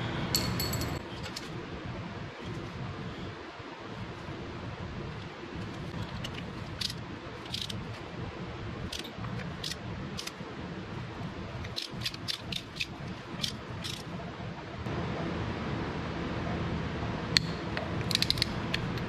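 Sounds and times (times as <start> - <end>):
torque wrench ratchet clicking: 6.8 - 7.8, 8.9 - 10.3, 11.7 - 14.1.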